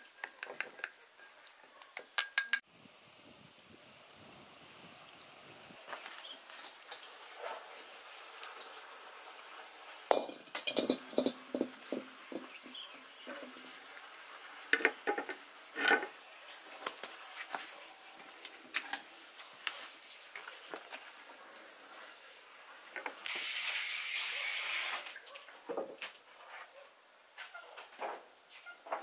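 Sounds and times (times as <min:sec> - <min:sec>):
plate and chopsticks clinking: 0:02.2 - 0:02.6, 0:10.1 - 0:11.4
metal wok knocking on concrete: 0:10.1 - 0:12.8.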